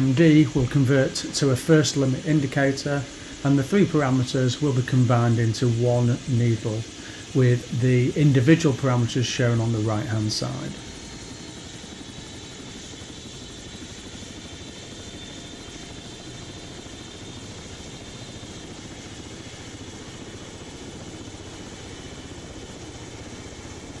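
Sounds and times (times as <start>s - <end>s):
helicopter running: 0.0s - 24.0s
high turbine whine: 0.0s - 24.0s.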